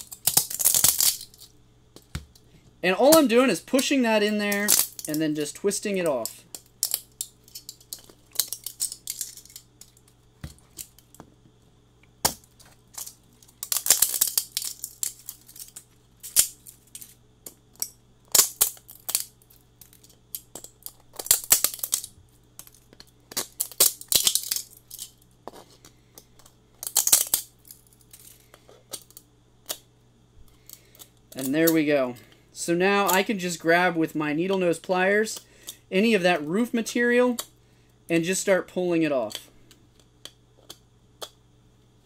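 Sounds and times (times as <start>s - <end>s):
plastic cracking and snapping: 0.0s - 2.4s, 12.2s - 16.7s, 17.4s - 25.1s, 26.2s - 28.3s.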